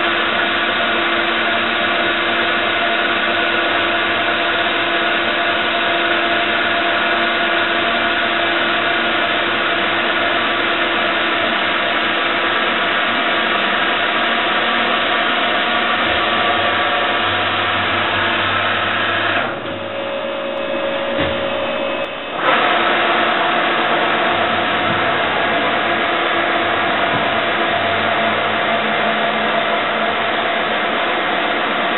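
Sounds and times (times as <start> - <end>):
milling machine whirring: 0.1 - 31.9
low knock: 19.6 - 22.2.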